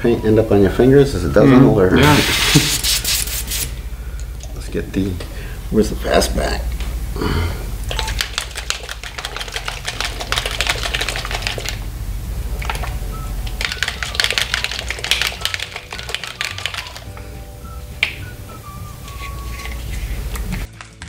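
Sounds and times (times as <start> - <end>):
paint bottle rattling when shaken: 7.9 - 11.9, 12.6 - 17.4, 19.0 - 20.9.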